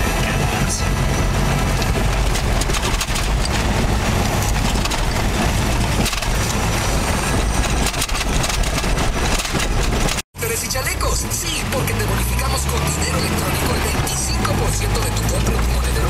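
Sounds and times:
engine and tyre rumble: 0.0s - 16.0s
rattles and knocks: 1.0s - 10.2s.

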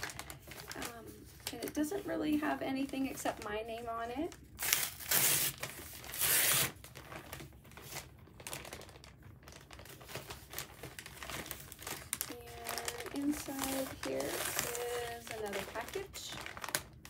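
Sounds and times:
packaging rustling and crinkling: 0.0s - 17.0s
package ripping open: 4.3s - 17.0s.

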